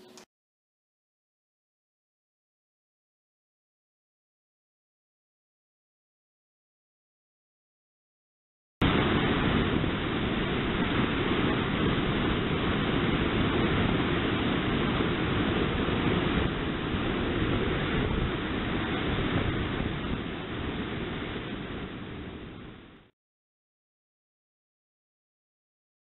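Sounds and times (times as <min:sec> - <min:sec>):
wind buffeting microphone: 0:08.8 - 0:23.0
sea water rushing along ship: 0:08.8 - 0:23.1.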